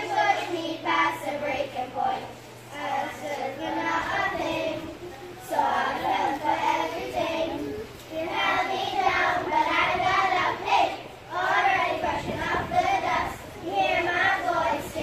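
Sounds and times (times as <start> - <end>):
girls singing together: 0.0 - 15.0.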